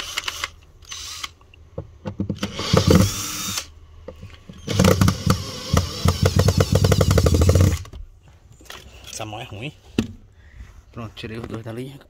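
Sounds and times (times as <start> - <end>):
cordless drill running: 0.0 - 1.3, 2.4 - 3.7, 4.6 - 7.9.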